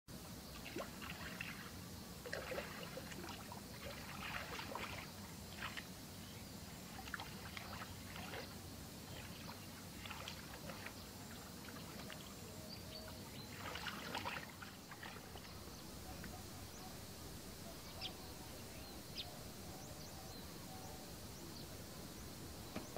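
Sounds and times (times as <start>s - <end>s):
hands splashing in muddy water: 13.5s - 15.3s.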